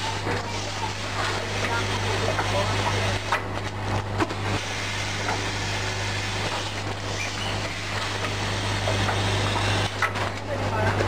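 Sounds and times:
machine low hum: 0:00.0 - 0:11.0
mechanical whirr and hiss: 0:04.2 - 0:10.3.

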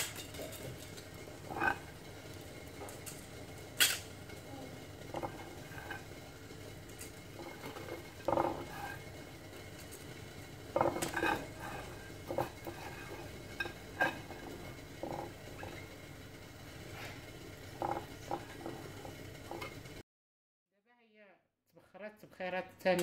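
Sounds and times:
hand and pot knocking dishes: 0:05.0 - 0:06.1, 0:06.9 - 0:09.1, 0:10.7 - 0:15.9, 0:17.8 - 0:19.8.

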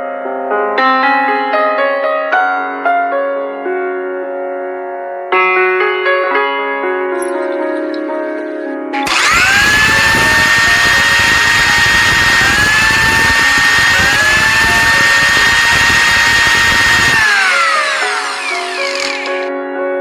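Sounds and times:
electric grinder motor whining: 0:09.0 - 0:19.5.

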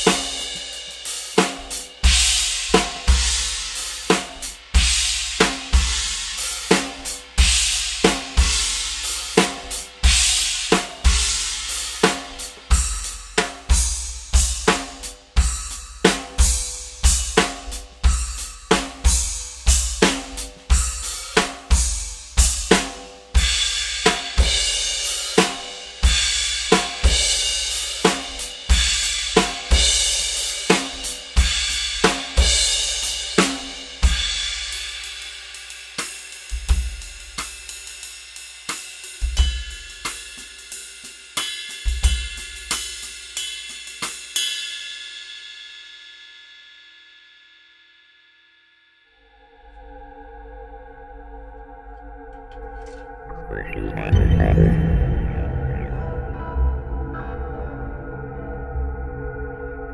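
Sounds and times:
drum groove: 0:00.0 - 0:34.9, 0:36.0 - 0:44.4
crash and ride cymbals: 0:00.0 - 0:48.4.

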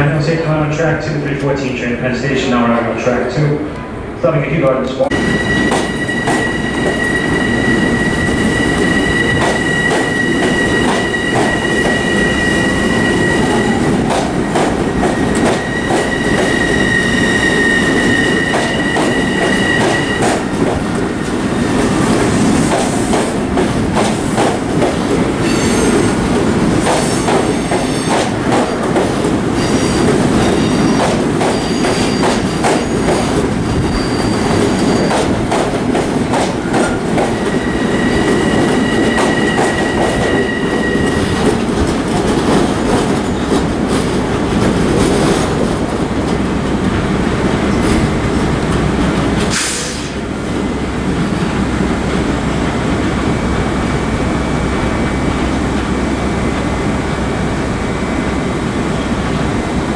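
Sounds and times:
train wheels rumbling on rail: 0:00.0 - 0:59.9
high-pitched wheel squeal: 0:05.2 - 0:14.0, 0:15.2 - 0:20.2, 0:33.7 - 0:35.3, 0:36.8 - 0:41.4.

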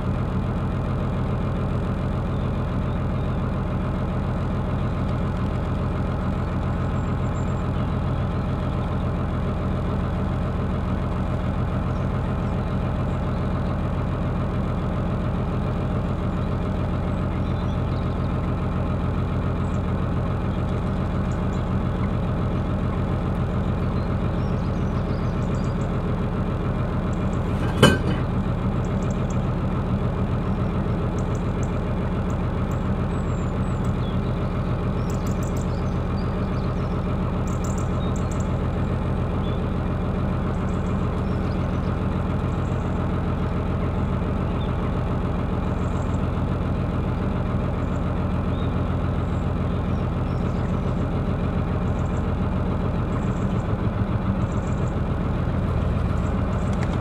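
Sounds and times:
boat engine throbbing: 0:00.0 - 0:57.0.

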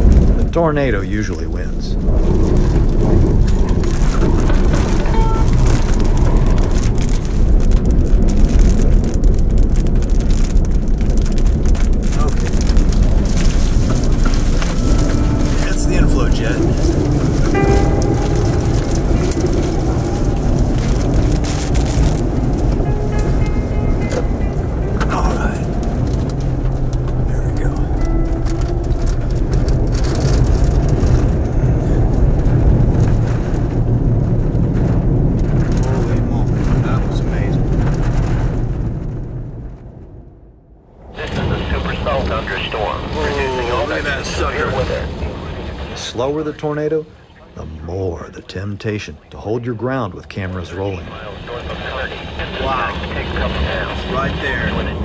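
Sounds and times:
strong wind blasting microphone: 0:00.0 - 0:46.0, 0:51.0 - 0:55.0
small debris hits: 0:02.0 - 0:39.4.

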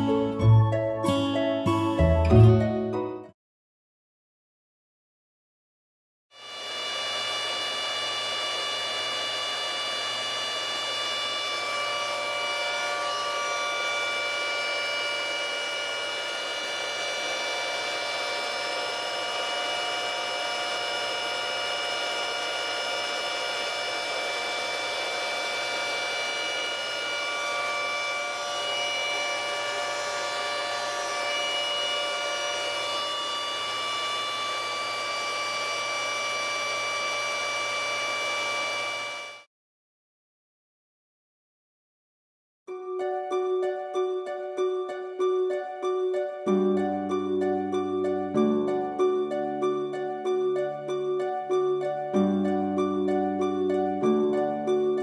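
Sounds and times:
high whining tones: 0:06.4 - 0:39.5.

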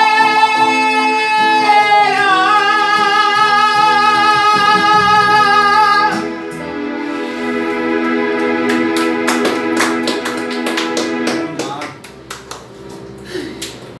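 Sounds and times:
instrumental chord: 0:00.0 - 0:13.3
sharp hand claps: 0:08.6 - 0:13.9.

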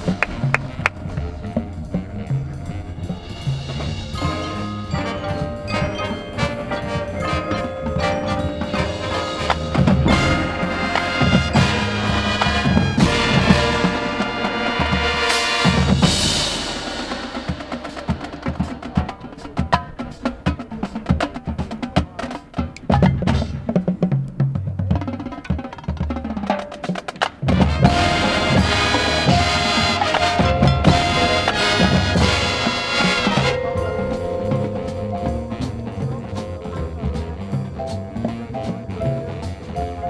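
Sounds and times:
wind instruments sustained chords: 0:00.0 - 0:19.6, 0:27.6 - 0:40.0
mallet percussion: 0:00.0 - 0:23.7, 0:25.0 - 0:40.0
drumline: 0:00.0 - 0:40.0.

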